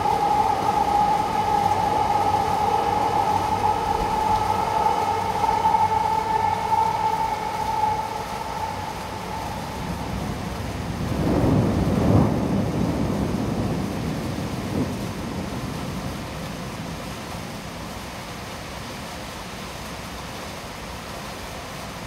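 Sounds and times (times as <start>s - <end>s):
rumble of thunder: 0.0s - 18.2s
heavy rain falling: 0.0s - 22.0s.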